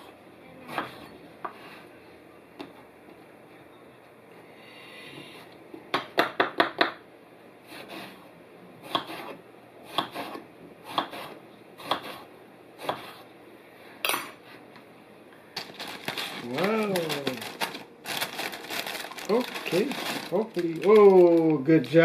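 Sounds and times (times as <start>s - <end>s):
knife chopping on plastic board: 8.8s - 12.2s.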